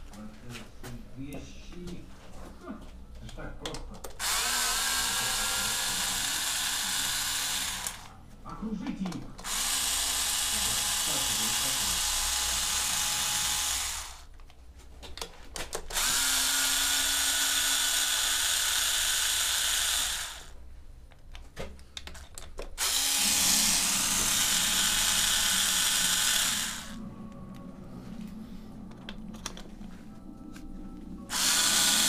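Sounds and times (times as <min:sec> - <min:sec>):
power drill running: 0:04.2 - 0:08.1, 0:09.4 - 0:14.3, 0:15.9 - 0:20.6, 0:22.8 - 0:27.0, 0:31.3 - 0:32.0.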